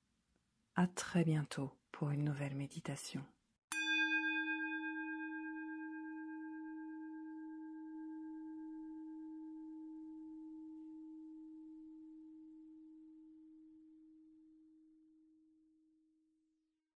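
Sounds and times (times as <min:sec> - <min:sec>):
singing bowl ringing: 0:03.7 - 0:15.2.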